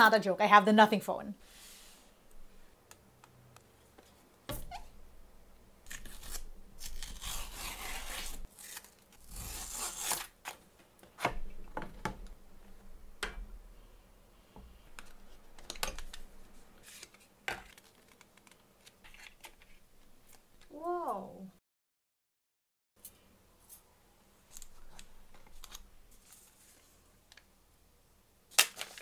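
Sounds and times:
cardboard packaging tearing: 5.8 - 10.6, 28.5 - 29.0.

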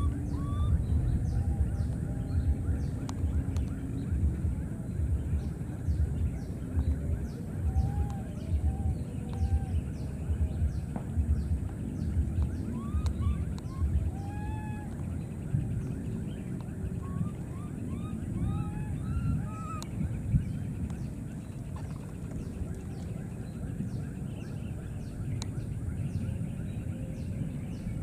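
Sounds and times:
rising and falling animal calls: 0.0 - 2.2, 12.6 - 15.1, 16.9 - 19.9
low rumbling thumps: 0.0 - 14.3.

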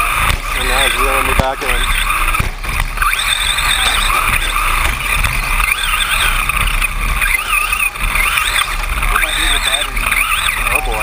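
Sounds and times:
toy truck electric motors whining: 0.0 - 11.0.

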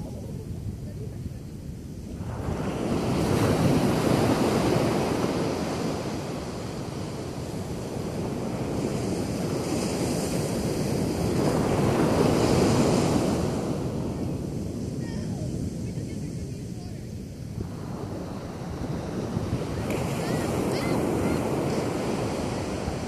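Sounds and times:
ocean waves breaking: 0.0 - 23.0.

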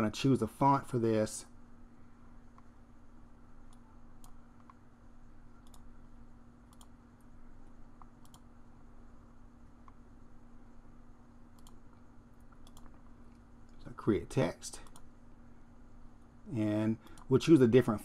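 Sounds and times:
low steady hum: 0.0 - 18.0
computer mouse clicking: 3.7 - 4.8, 5.6 - 5.9, 6.7 - 7.0, 8.0 - 8.5, 11.5 - 13.8, 14.8 - 15.1, 17.0 - 17.3.

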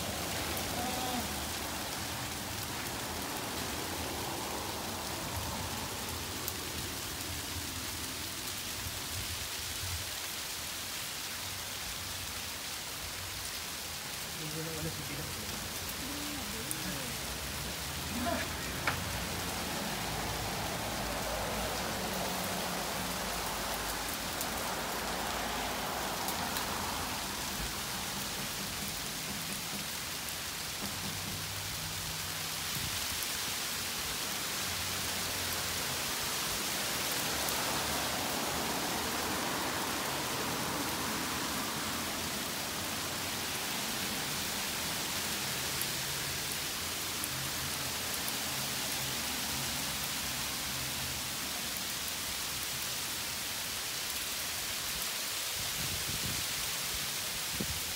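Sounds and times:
freezing rain and hail hiss: 0.0 - 57.9
faint hail ticks: 13.4 - 20.0, 23.0 - 32.6.

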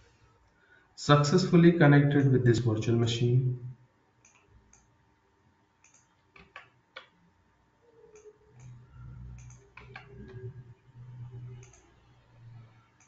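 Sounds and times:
mouse and keyboard clicks: 5.8 - 7.2, 8.1 - 10.5
low hum: 8.2 - 13.0.

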